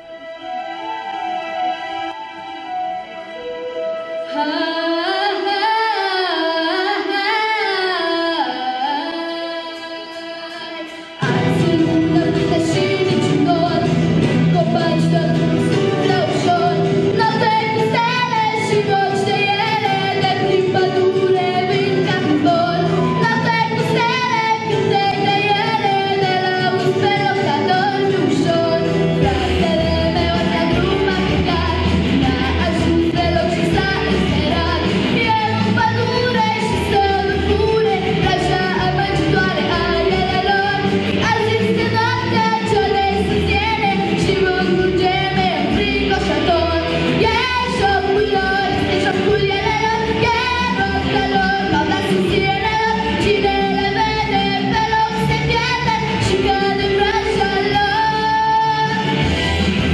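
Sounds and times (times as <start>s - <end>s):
girl singing into microphone: 4.2s - 59.4s
backing track with bass and beat: 25.6s - 59.9s.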